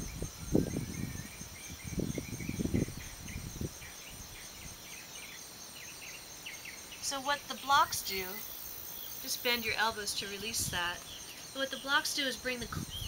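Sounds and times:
wind buffeting microphone: 0.0s - 4.9s, 9.4s - 13.0s
insects trilling: 0.0s - 13.0s.

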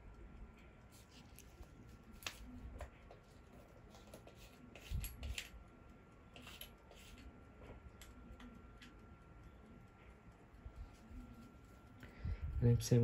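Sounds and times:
wristwatch clicks and scrapes: 1.0s - 5.6s, 6.3s - 7.3s.

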